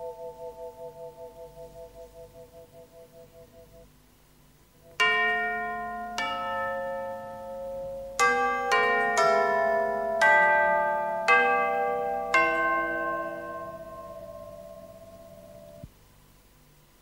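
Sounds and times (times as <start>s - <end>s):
bell-like chimes melody: 5.0s - 15.9s.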